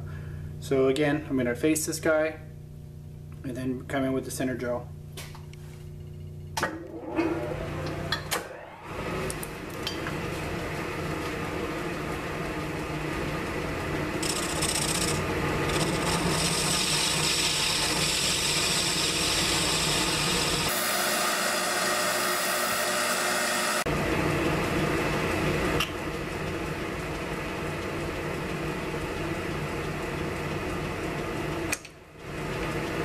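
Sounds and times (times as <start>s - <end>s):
lathe running: 6.6s - 24.3s
lathe tool hissing: 6.7s - 10.5s, 14.2s - 23.9s.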